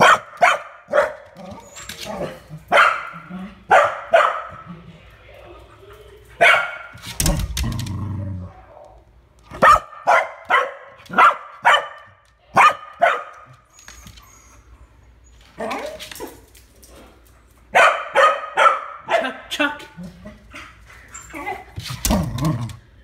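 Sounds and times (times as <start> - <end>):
dog barking: 0.0 - 1.3, 2.7 - 4.6, 6.4 - 6.9, 9.5 - 13.5, 17.7 - 19.4.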